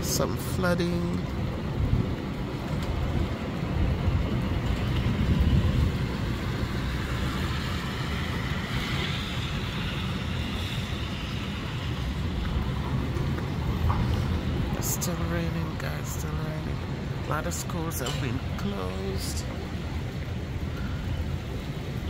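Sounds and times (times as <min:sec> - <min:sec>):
steady rain: 0:00.0 - 0:22.0
wind buffeting microphone: 0:01.2 - 0:17.4.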